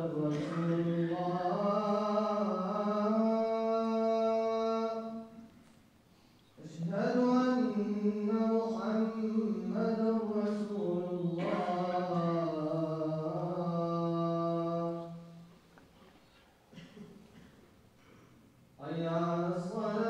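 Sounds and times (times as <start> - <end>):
man chanting: 0.0 - 5.5, 6.6 - 15.4, 18.8 - 20.0.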